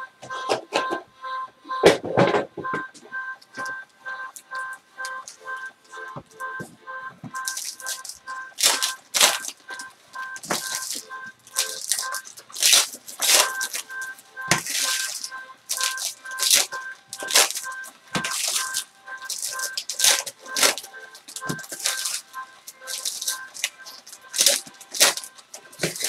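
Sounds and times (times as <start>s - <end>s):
background music of two-note beeps: 0.0s - 26.0s
foil wrappers crinkling and tearing: 7.4s - 26.0s.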